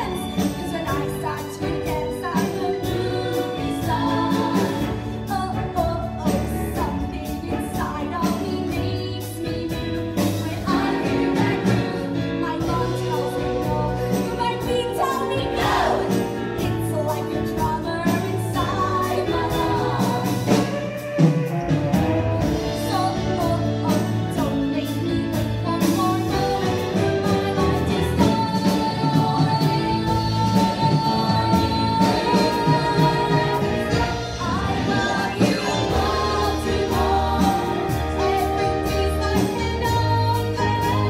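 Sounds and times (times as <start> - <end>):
live band playing: 0.0 - 41.0
stage cast singing: 0.0 - 41.0.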